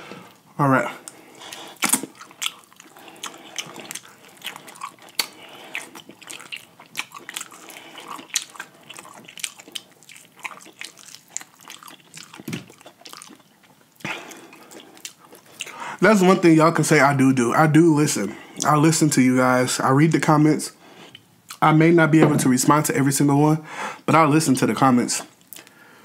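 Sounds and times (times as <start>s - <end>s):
person chewing and crunching food: 0.2s - 15.8s.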